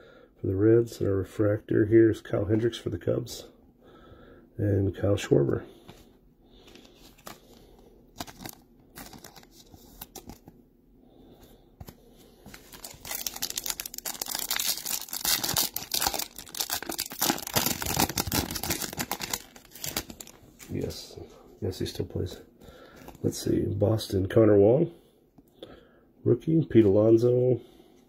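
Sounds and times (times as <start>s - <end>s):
foil wrapper tearing and crinkling: 8.2s - 10.4s, 12.6s - 20.4s.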